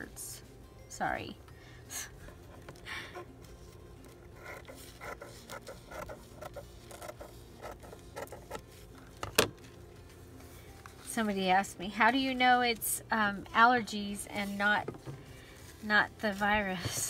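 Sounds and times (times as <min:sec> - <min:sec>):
tissue paper crinkling: 0:14.2 - 0:17.0.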